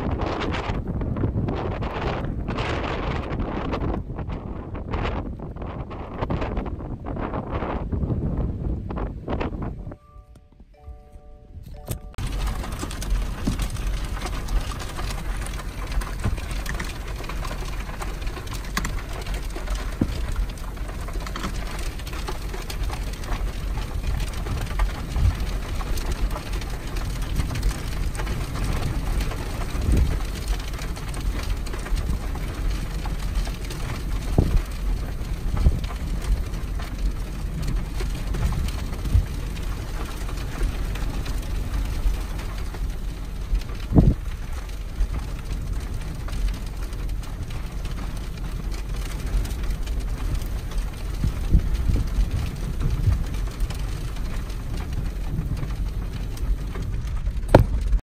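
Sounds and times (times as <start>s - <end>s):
raindrops tapping: 12.0s - 58.0s
rain spattering: 12.2s - 58.0s.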